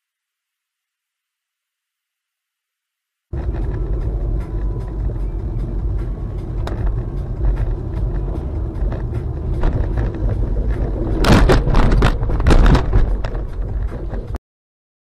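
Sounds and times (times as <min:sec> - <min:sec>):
car engine and road rumble: 0:03.3 - 0:14.4
loud thumps and rattling: 0:05.9 - 0:14.4.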